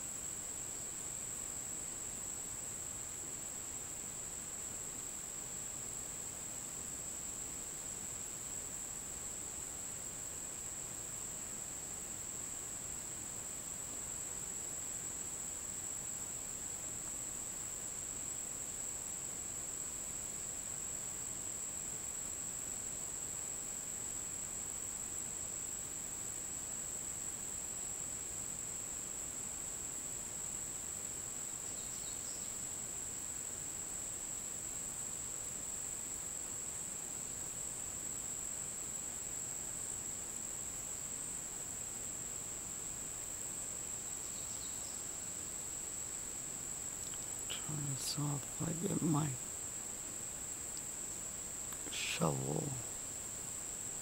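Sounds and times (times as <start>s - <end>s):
insects droning: 0.0s - 54.0s
faint chirps: 31.6s - 32.6s, 44.0s - 45.3s, 47.0s - 49.5s, 51.6s - 53.0s.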